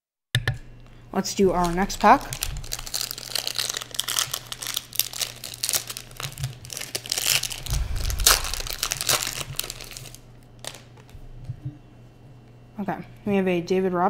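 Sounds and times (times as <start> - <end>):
foil wrapper crinkling: 1.5 - 11.1.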